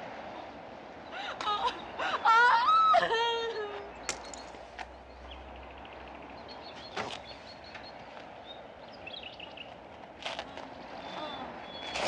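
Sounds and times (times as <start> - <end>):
small birds chirping: 3.8 - 12.0.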